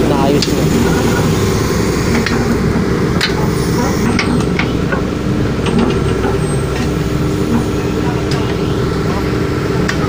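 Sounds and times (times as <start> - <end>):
heavy diesel engine running: 0.0 - 10.0.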